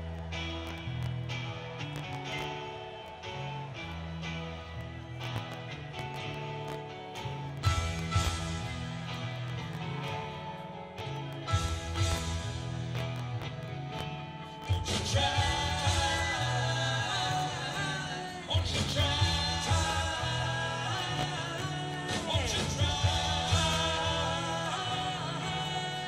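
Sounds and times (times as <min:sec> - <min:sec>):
rock band playing: 0:00.0 - 0:26.0
lead voice singing: 0:14.7 - 0:26.0.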